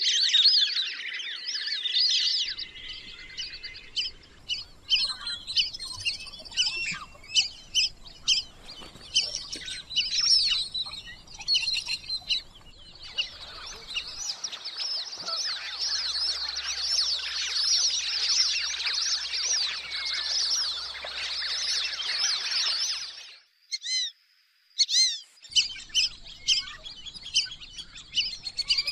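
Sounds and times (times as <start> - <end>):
ducks whistling: 2.4 - 23.2, 24.8 - 28.9.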